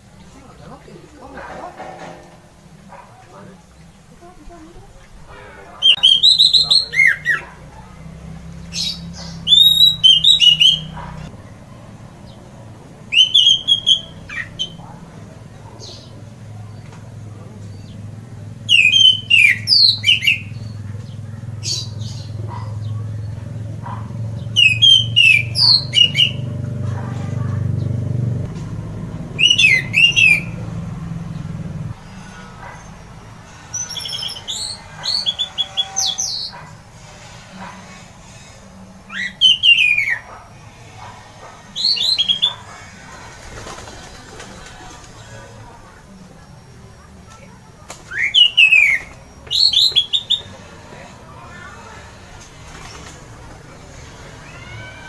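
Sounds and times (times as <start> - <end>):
thrush singing: 0.0 - 55.0
low hum: 25.8 - 35.5.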